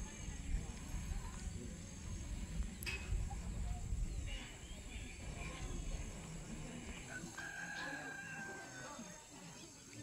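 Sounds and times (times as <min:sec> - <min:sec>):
wind buffeting microphone: 0:00.0 - 0:07.1.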